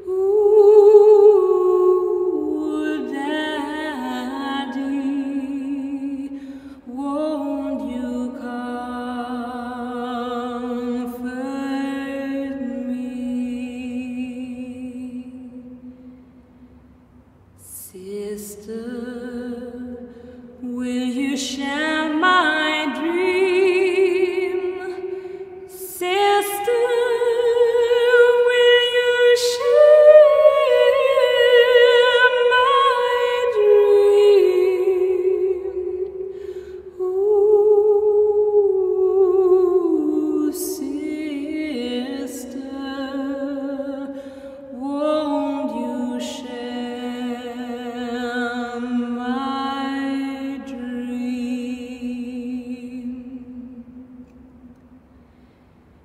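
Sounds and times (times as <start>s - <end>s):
women singing a cappella gospel: 0.0s - 15.3s, 17.7s - 53.4s
breath: 6.3s - 6.9s, 20.0s - 20.5s, 25.1s - 25.5s, 36.3s - 36.9s, 44.1s - 44.7s, 55.1s - 56.0s.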